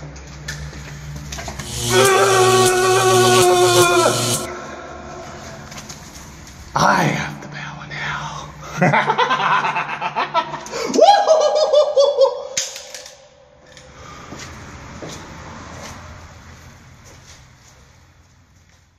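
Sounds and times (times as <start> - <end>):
man cackling: 9.1 - 12.5.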